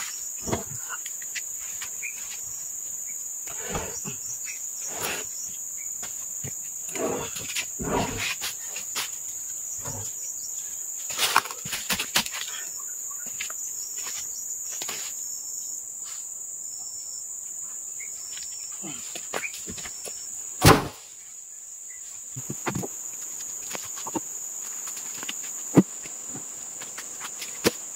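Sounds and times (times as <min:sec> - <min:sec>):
insects chirring: 0:00.0 - 0:27.9
loud thump: 0:20.6 - 0:21.0.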